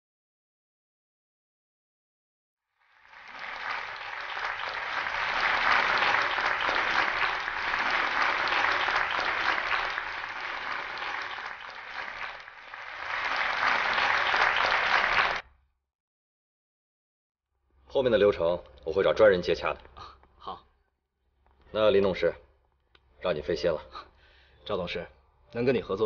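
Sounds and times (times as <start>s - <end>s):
people applauding: 2.8s - 15.4s.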